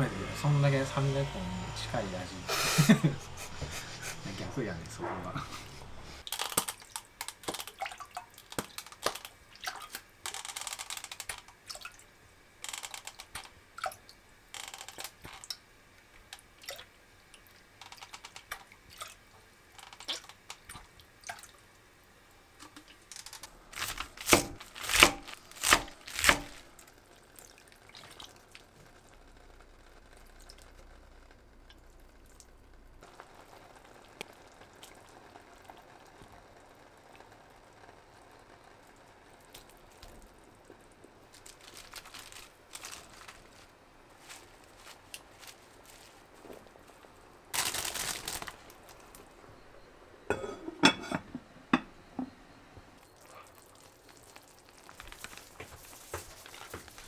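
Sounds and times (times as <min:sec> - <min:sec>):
faint steady hiss: 0:00.0 - 0:57.0
liquid trickling and dripping: 0:06.2 - 0:10.1, 0:10.8 - 0:12.1, 0:13.0 - 0:14.2, 0:16.2 - 0:21.8, 0:53.0 - 0:57.0.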